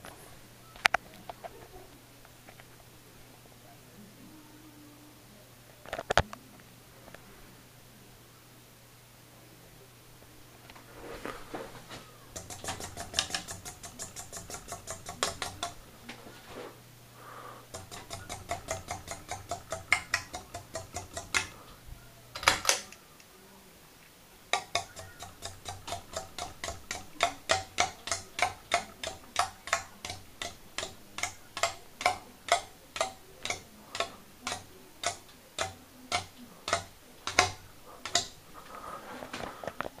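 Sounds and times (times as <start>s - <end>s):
fan rattle: 10.8s - 23.0s, 24.4s - 39.5s
ceiling fan clicking: 11.8s - 16.2s, 17.0s - 40.0s.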